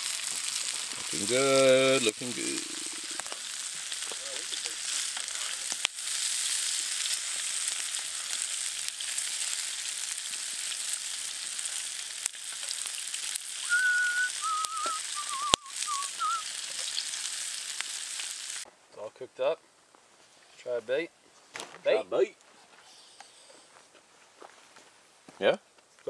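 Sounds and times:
fish sizzling in a frying pan: 0.0 - 18.7
short wavering whistle: 13.6 - 16.4.

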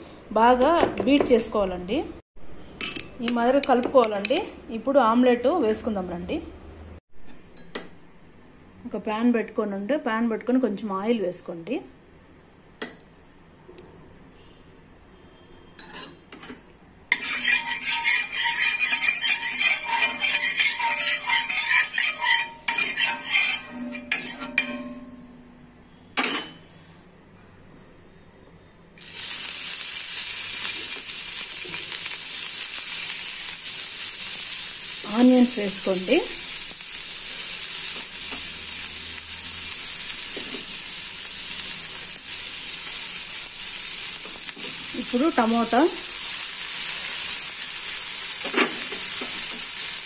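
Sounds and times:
metal spoon scraping iron pan: 17.1 - 25.1
onions sizzling in oil: 29.0 - 50.0.

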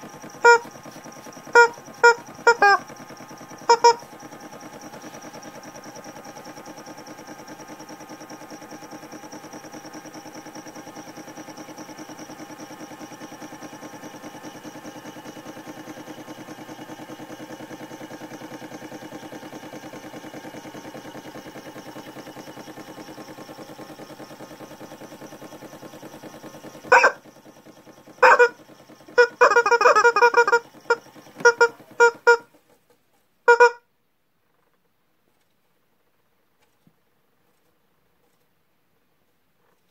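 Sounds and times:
toy washing machine motor whirring: 0.0 - 33.8.

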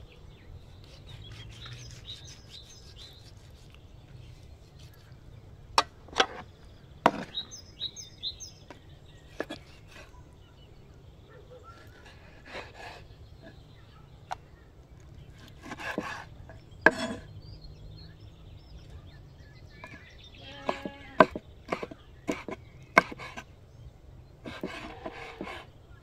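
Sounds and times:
knife chopping on wooden board: 15.4 - 16.3, 16.9 - 17.2, 20.6 - 23.4, 24.5 - 25.6.

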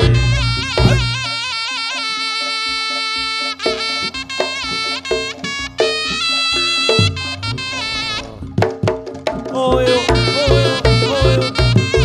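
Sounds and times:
low drum beats: 0.0 - 1.5, 3.6 - 12.0
wavering reed melody: 0.0 - 12.0.

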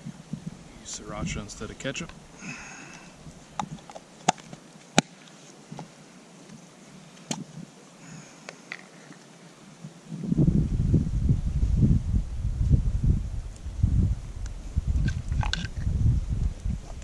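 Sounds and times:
plastic containers clicking on rock: 15.1 - 15.8.

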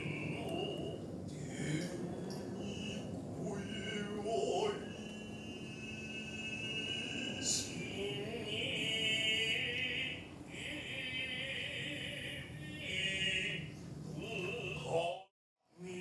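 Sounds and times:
man chanting slowly: 0.0 - 16.0.

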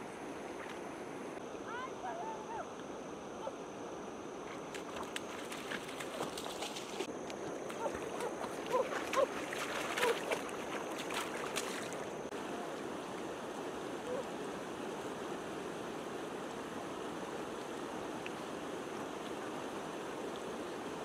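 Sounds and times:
river water flowing over rocks: 4.3 - 21.0
splashing clicks: 4.6 - 12.0.

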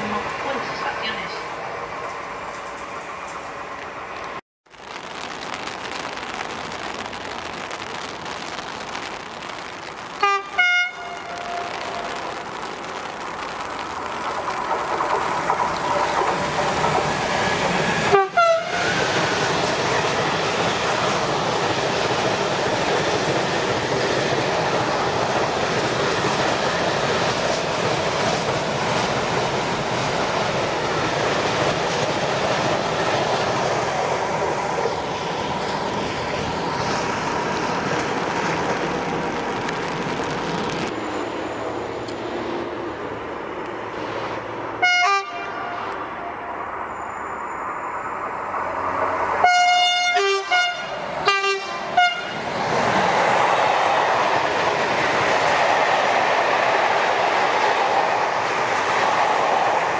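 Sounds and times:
freight train passing: 0.0 - 6.0, 6.6 - 59.9
locomotive horn blasts: 10.2 - 12.1, 18.1 - 18.8, 44.8 - 45.9, 49.4 - 52.4.

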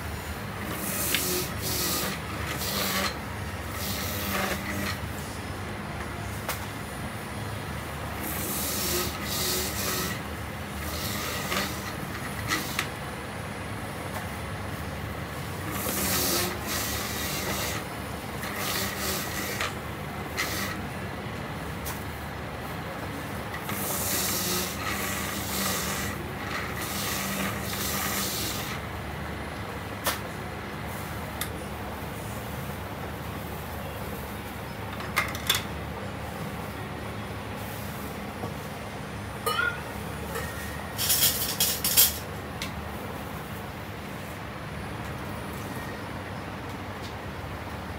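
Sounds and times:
citrus juicer motor running: 0.0 - 5.1, 8.1 - 13.0, 15.5 - 20.9, 23.2 - 29.1
rasping grind of orange pressed: 0.6 - 5.0, 8.2 - 13.0, 15.6 - 20.8, 23.5 - 28.8.

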